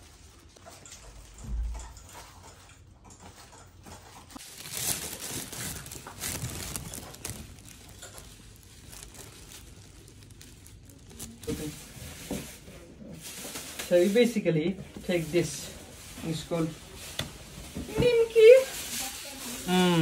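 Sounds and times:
plastic bag rustling: 0:04.2 - 0:20.0.

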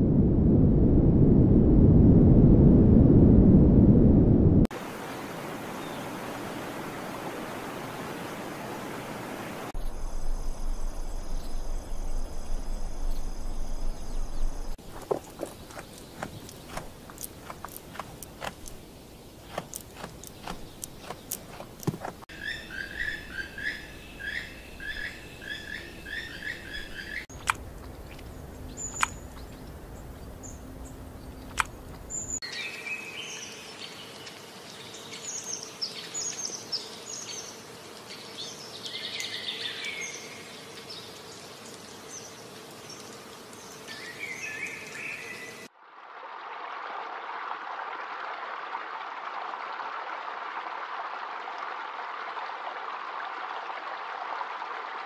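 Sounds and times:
low hum: 0:00.0 - 0:04.7, 0:09.8 - 0:32.4
bird calls and chirps: 0:22.3 - 0:34.3.

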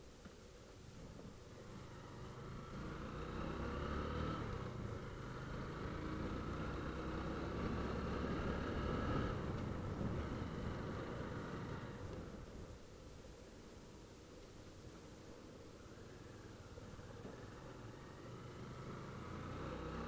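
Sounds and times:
road noise: 0:00.0 - 0:20.0.

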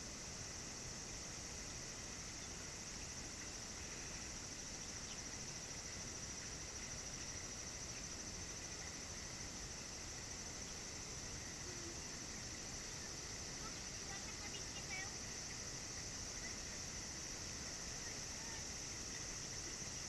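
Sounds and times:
faint background hiss: 0:00.0 - 0:20.0
insects droning high-pitched: 0:00.0 - 0:20.0.

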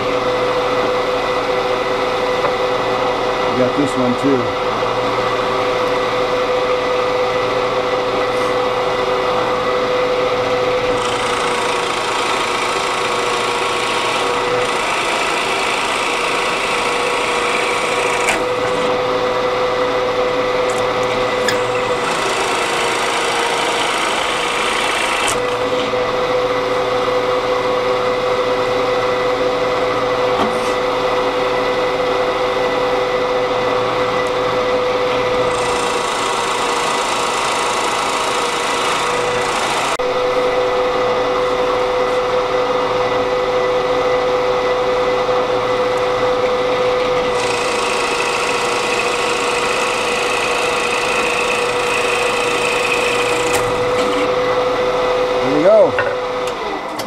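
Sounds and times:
drill press motor hum: 0:00.0 - 0:57.0
drill bit cutting wood: 0:10.4 - 0:19.0, 0:20.7 - 0:25.9, 0:35.1 - 0:40.2, 0:47.2 - 0:54.3.

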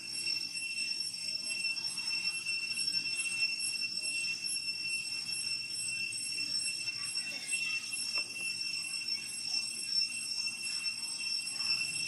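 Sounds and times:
cicadas droning: 0:00.0 - 0:12.0.

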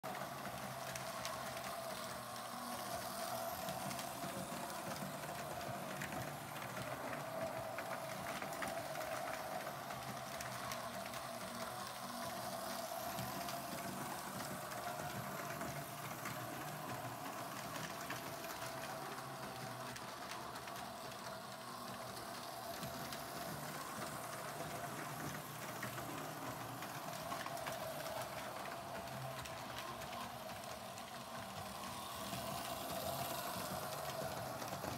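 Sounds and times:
model train motor whirring: 0:00.1 - 0:34.9
wheels clicking over rail joints: 0:00.1 - 0:34.9.

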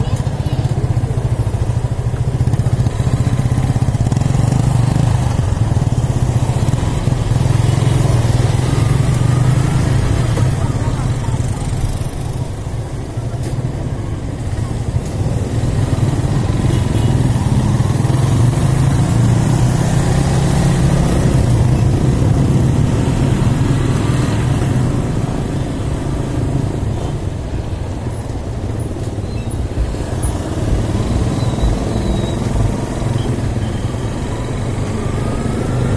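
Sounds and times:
motorcycle engine running: 0:00.0 - 0:13.2, 0:29.7 - 0:35.9
road and wind noise: 0:00.0 - 0:35.9.

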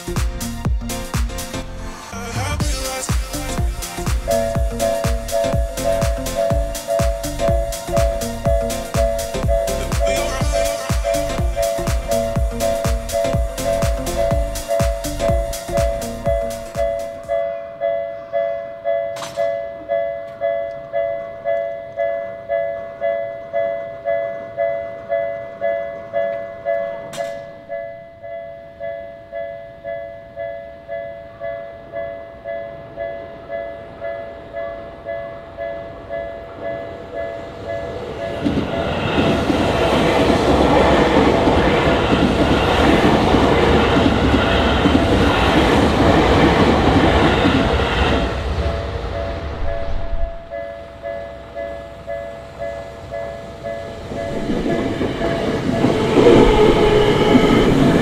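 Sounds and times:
train passing with wheel noise: 0:00.0 - 0:58.0
level crossing bell ringing: 0:04.3 - 0:38.0.

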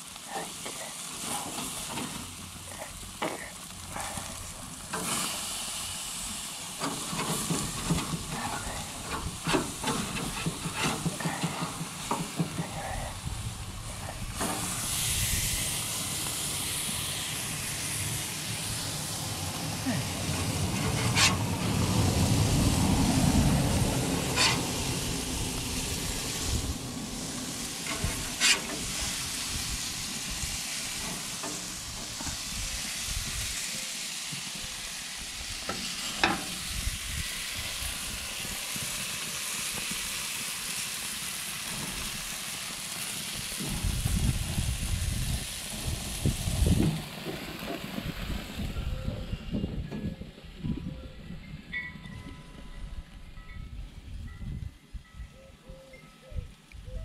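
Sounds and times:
chicken sizzling on a grill: 0:00.0 - 0:49.8.

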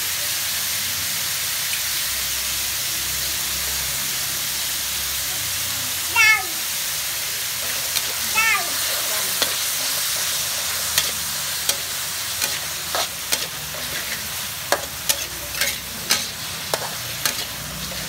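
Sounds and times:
meat sizzling in a wok: 0:00.0 - 0:18.0
spatula scraping a pan: 0:07.6 - 0:18.0.

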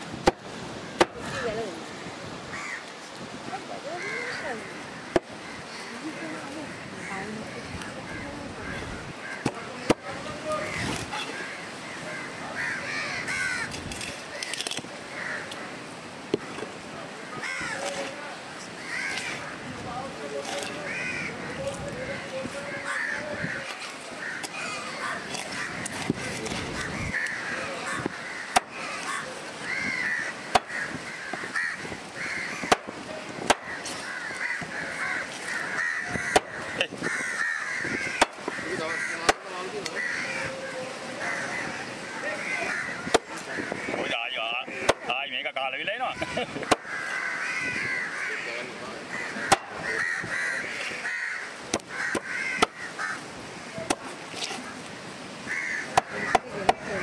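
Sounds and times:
cleaver chopping fish on wood: 0:01.0 - 0:01.2, 0:09.4 - 0:10.1, 0:28.4 - 0:28.8, 0:30.5 - 0:31.6, 0:32.6 - 0:34.7, 0:36.1 - 0:36.7, 0:38.0 - 0:38.6, 0:39.2 - 0:39.5, 0:43.0 - 0:43.4, 0:44.8 - 0:45.1, 0:46.6 - 0:46.9, 0:49.5 - 0:49.8, 0:51.7 - 0:52.8, 0:53.8 - 0:54.1, 0:55.8 - 0:57.0
crows cawing: 0:02.5 - 0:03.0, 0:03.8 - 0:19.7, 0:20.5 - 0:57.0.

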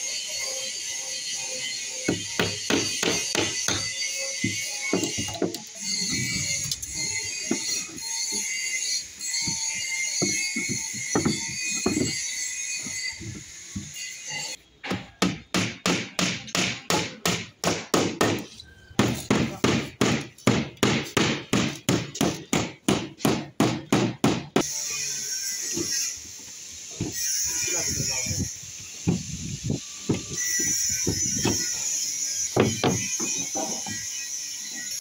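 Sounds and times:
hammer driving nails: 0:14.8 - 0:24.6.

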